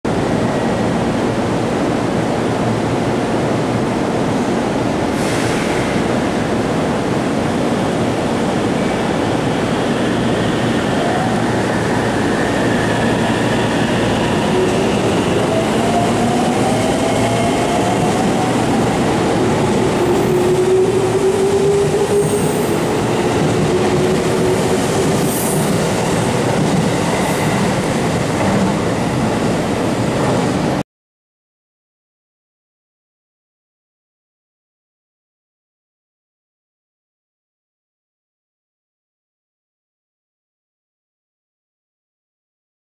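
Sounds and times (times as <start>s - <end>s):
high train squeals: 5.1s - 6.3s, 8.6s - 29.8s.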